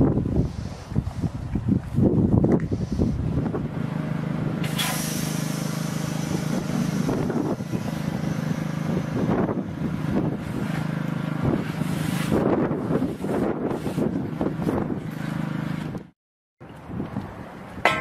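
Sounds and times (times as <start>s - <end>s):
vehicle engine idling: 2.9s - 12.0s
rushing hiss: 4.6s - 9.0s.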